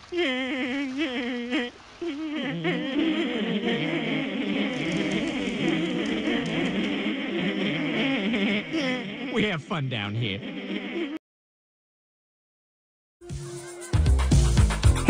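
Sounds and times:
person singing with vibrato: 0.0s - 9.7s.

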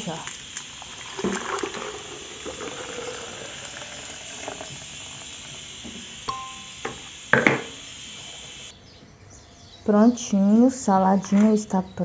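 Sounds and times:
juice pouring into pitcher: 0.3s - 5.7s
short tone: 6.3s - 7.1s.

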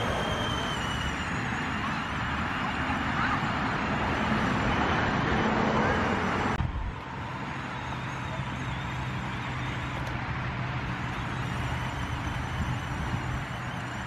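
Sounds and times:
toy car electric motor hum: 0.0s - 3.8s, 7.2s - 14.0s
loud rush of noise: 0.0s - 14.0s.

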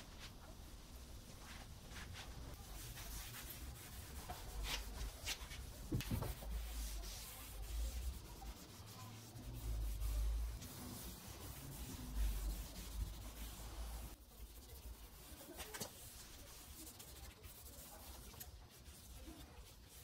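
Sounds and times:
hand rubbing wood: 1.4s - 14.2s.

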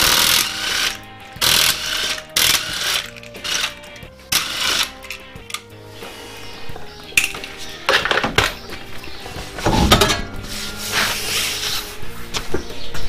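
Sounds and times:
impact wrench bursts: 0.0s - 5.6s
metal wheel nuts clinking: 0.0s - 5.8s, 6.8s - 10.5s
background music: 0.0s - 13.0s.

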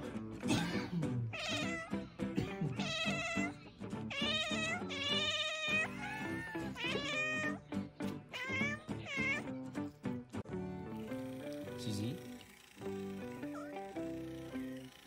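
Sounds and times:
background music: 0.0s - 15.0s
cat yowling: 1.3s - 2.0s, 2.8s - 7.6s, 8.3s - 9.5s, 13.3s - 14.0s.

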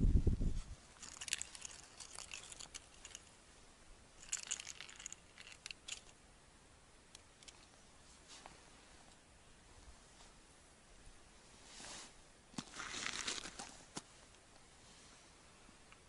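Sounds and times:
crinkling and rustling in hands: 0.6s - 3.4s, 4.2s - 6.2s, 11.7s - 16.0s.

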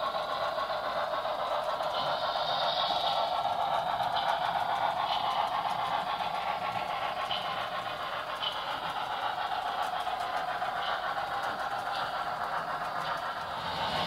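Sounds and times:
light track clicks: 0.0s - 14.0s
model train cars rolling: 0.0s - 14.0s.

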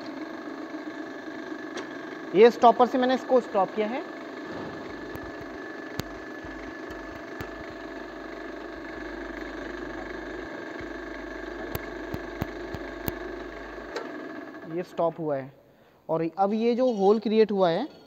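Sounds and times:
drilling machine humming: 0.0s - 15.0s
sharp clicks: 4.8s - 8.0s, 10.8s - 14.0s.

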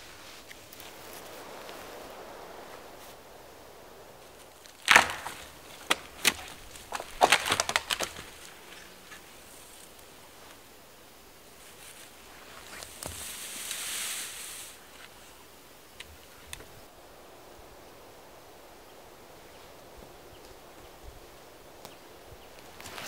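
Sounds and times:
dry wood cracking: 4.2s - 10.6s.

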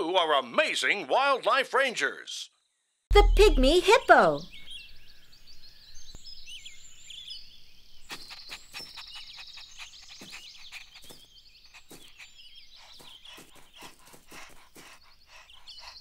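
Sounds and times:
birds chirping: 3.1s - 16.0s.

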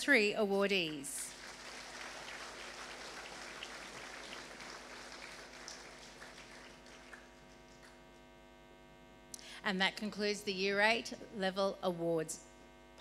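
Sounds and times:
faint mains hum: 0.0s - 13.0s
audience clapping: 0.8s - 8.0s.

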